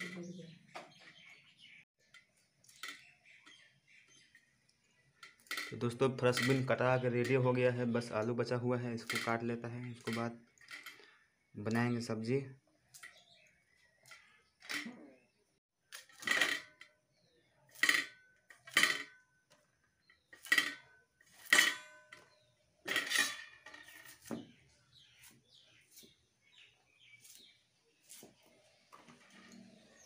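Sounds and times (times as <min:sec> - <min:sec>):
metal plate clinking: 0:05.2 - 0:11.1, 0:16.0 - 0:16.9, 0:17.7 - 0:19.2, 0:20.2 - 0:24.3.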